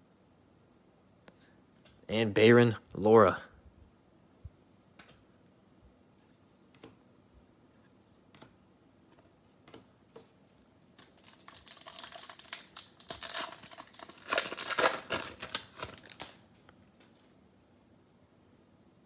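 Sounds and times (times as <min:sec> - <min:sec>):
card pack wrapper crinkling: 0:11.0 - 0:17.3.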